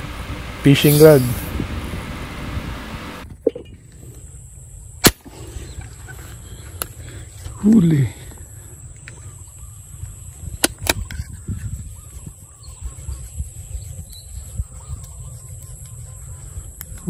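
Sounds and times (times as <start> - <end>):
wind rumble on microphone: 0.0 - 4.8, 8.4 - 17.0
airgun shots: 5.0 - 5.3
faint bird calls: 5.3 - 17.0.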